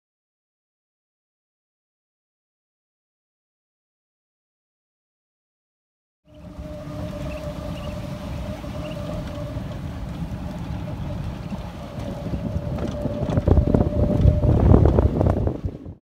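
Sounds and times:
electric motor whine: 6.3 - 15.0
wind buffeting microphone: 6.3 - 16.0.

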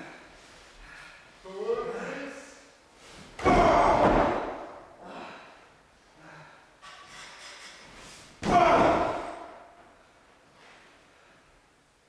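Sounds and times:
bodies slamming onto ring mat: 3.3 - 4.8, 8.4 - 9.6.

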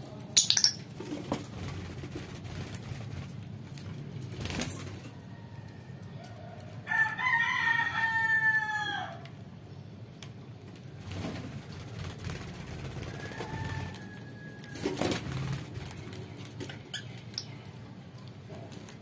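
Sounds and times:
rooster crowing: 5.1 - 9.3, 13.0 - 15.1.

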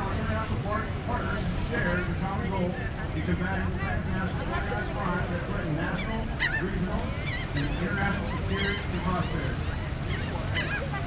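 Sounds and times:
birds calling: 5.8 - 11.0.

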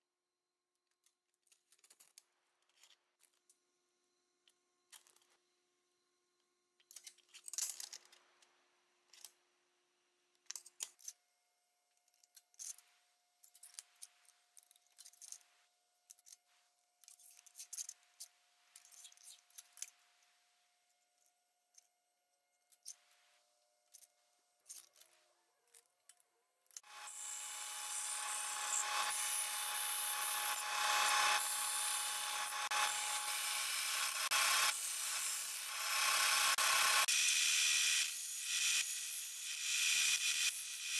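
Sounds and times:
band saw cutting metal: 26.8 - 40.9.

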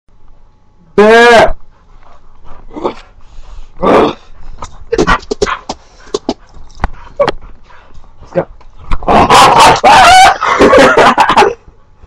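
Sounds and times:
dog growling and yipping: 2.5 - 3.1, 3.8 - 6.3, 8.9 - 11.0.

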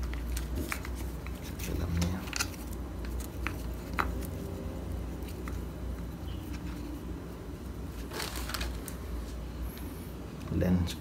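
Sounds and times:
packaging crinkling: 0.0 - 7.0, 7.8 - 9.4.

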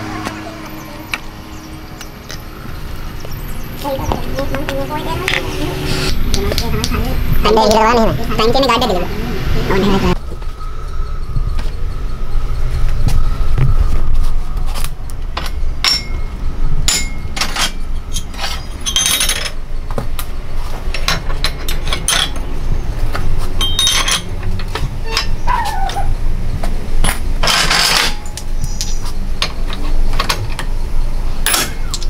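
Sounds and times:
steady low rumble: 0.0 - 23.7
metallic clinks of steel parts: 15.4 - 19.6, 23.6 - 25.4.

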